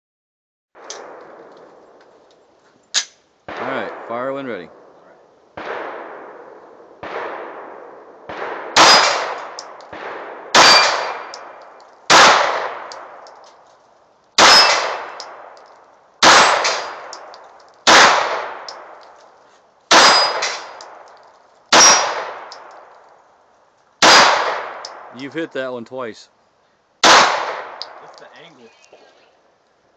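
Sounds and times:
quieter gunshots: 0:00.8 - 0:02.0, 0:03.0 - 0:13.4, 0:14.4 - 0:15.6, 0:16.2 - 0:19.2, 0:19.9 - 0:21.1, 0:21.7 - 0:22.9, 0:24.0 - 0:25.5, 0:27.0 - 0:29.1
pistol shots echoing: 0:03.0 - 0:04.1, 0:05.6 - 0:13.2, 0:14.4 - 0:15.5, 0:16.2 - 0:19.0, 0:19.9 - 0:21.0, 0:21.7 - 0:22.7, 0:24.0 - 0:25.2, 0:27.0 - 0:28.0.

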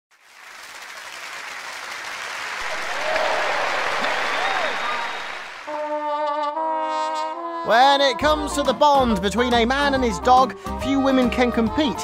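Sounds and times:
crowd applauding and cheering: 0:00.2 - 0:06.2
person whooping: 0:02.6 - 0:05.6
brass fanfare: 0:02.6 - 0:08.6.

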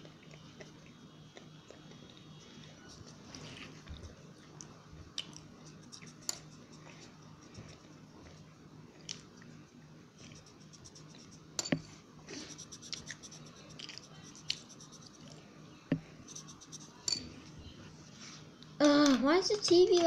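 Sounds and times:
pencil scratching on paper: 0:10.2 - 0:11.5, 0:12.4 - 0:15.3, 0:16.2 - 0:17.0.

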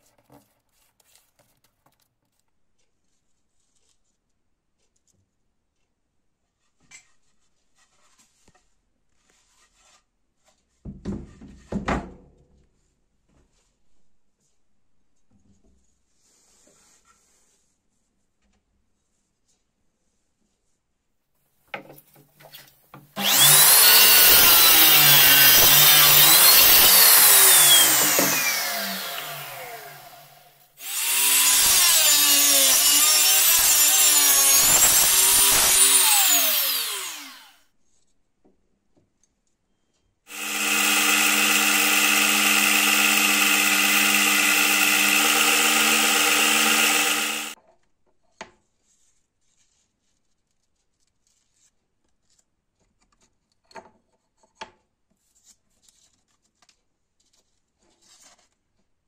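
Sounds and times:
power tool noise: 0:23.1 - 0:37.6, 0:40.3 - 0:47.6
miter saw cutting wood: 0:23.2 - 0:37.6, 0:40.3 - 0:47.6.

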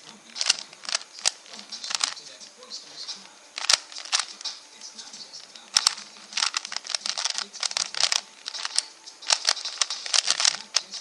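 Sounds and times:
plastic puzzle cube clicking: 0:00.0 - 0:02.3, 0:03.6 - 0:04.6, 0:05.4 - 0:11.0.

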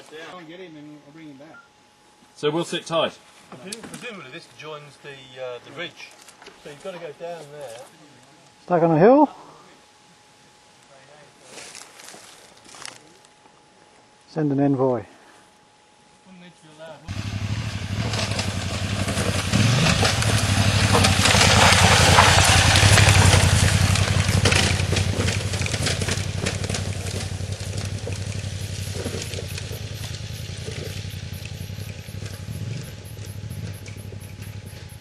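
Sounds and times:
off-road motorcycle engine: 0:17.0 - 0:35.0.

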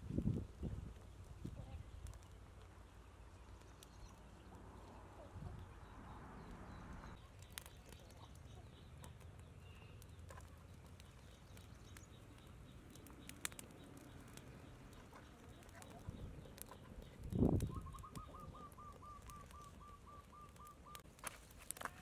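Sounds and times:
wood fire crackling and popping: 0:00.0 - 0:22.0
faint bird calls: 0:03.2 - 0:21.0.

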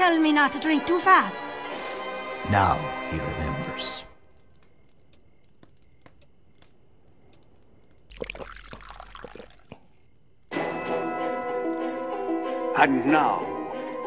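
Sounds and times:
sipping and gulping: 0:08.1 - 0:10.1.

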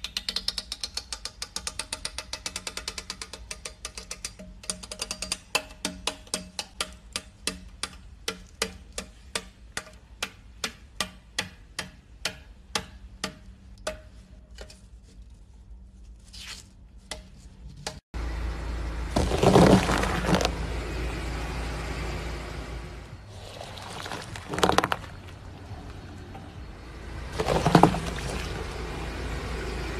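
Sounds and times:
tyre squishing goo: 0:23.3 - 0:25.4.

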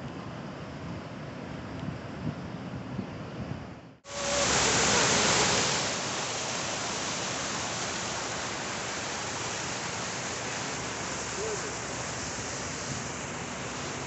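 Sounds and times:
steady rushing noise: 0:04.0 - 0:14.0.

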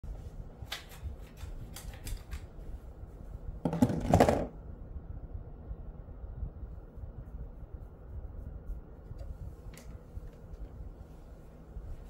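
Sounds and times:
rustling and knocking: 0:03.6 - 0:04.6.

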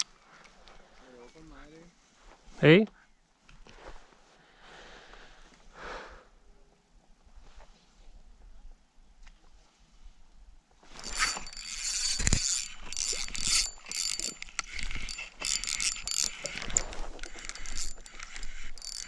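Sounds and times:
fishing reel whirring and clicking: 0:10.9 - 0:19.0.

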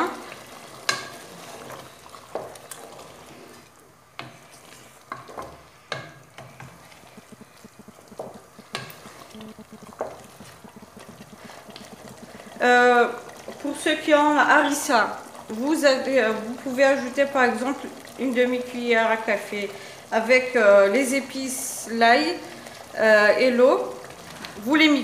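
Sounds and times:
sauce sizzling: 0:00.0 - 0:25.0
wooden spoon stirring in sauce: 0:00.0 - 0:25.0.

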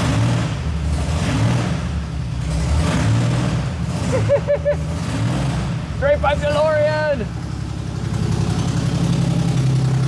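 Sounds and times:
loud car engine idling: 0:03.7 - 0:10.0.

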